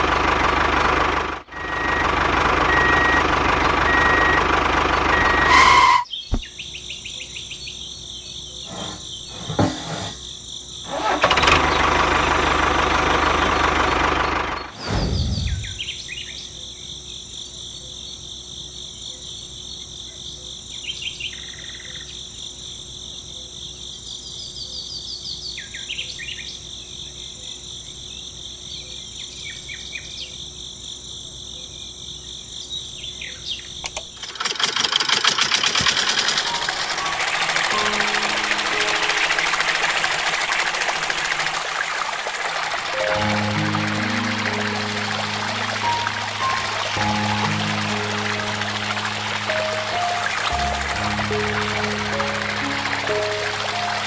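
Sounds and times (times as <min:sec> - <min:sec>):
birds chirping: 0:13.2 - 0:16.4
small motor running: 0:34.2 - 0:41.5.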